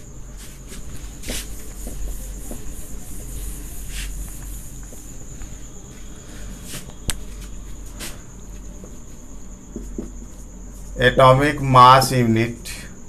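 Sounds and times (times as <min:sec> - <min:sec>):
duster wiping a whiteboard: 0:00.0 - 0:11.0.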